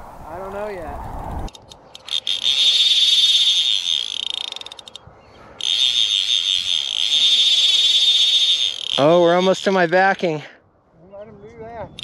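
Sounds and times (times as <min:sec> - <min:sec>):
fly reel drag buzzing: 0:01.5 - 0:05.0, 0:05.6 - 0:10.3.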